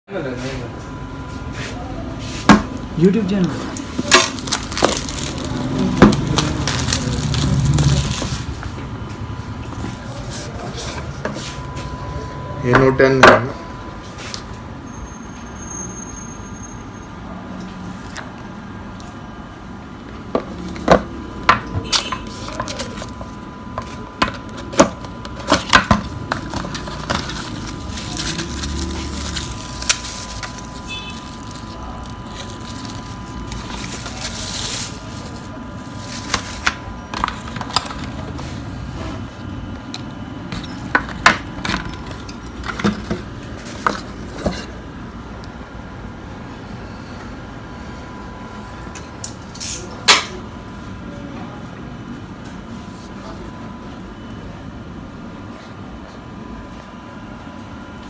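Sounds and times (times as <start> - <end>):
faint steady whine: 0.1 - 58.0
cardboard and paper rustling: 3.5 - 8.8, 21.9 - 39.3, 40.5 - 44.7.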